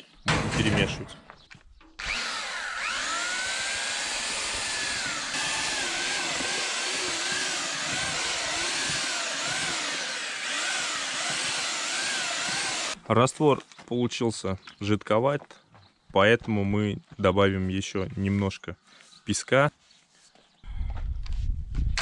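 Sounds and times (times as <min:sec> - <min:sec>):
electric mixer motor churning mortar: 0:02.0 - 0:13.0.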